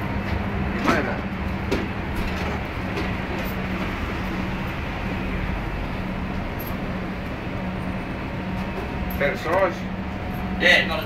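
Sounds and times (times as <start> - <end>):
kitchen ventilation fans whirring: 0.0 - 11.0.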